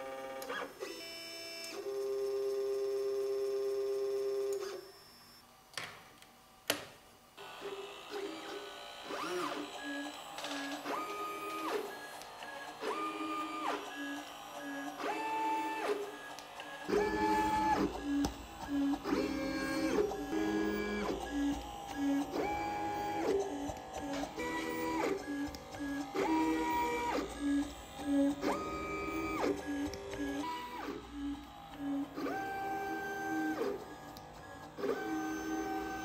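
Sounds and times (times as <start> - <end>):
stepper motors whining: 7.4 - 36.0.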